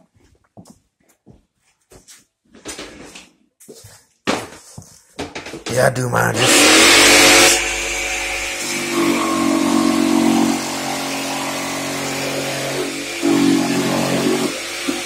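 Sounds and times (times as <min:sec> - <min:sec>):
electric air compressor running: 0:06.4 - 0:15.0.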